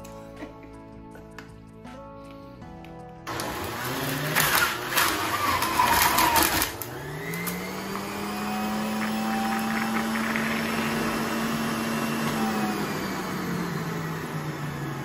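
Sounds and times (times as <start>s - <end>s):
fruit crunching in juicer: 3.3s - 15.0s
juicer motor hum: 3.3s - 15.0s.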